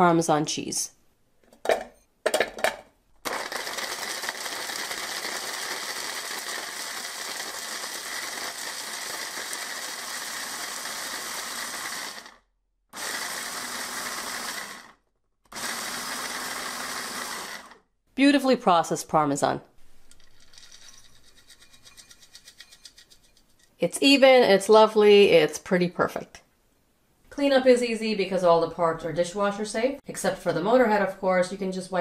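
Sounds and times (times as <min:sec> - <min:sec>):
food chopper motor grinding: 0:03.3 - 0:12.4, 0:13.0 - 0:17.8.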